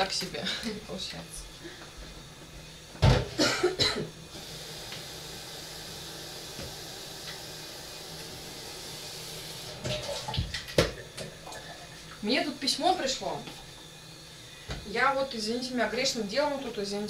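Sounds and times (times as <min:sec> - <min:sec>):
kitchen tap running: 0:04.3 - 0:14.0
water filling a jug: 0:04.4 - 0:12.2.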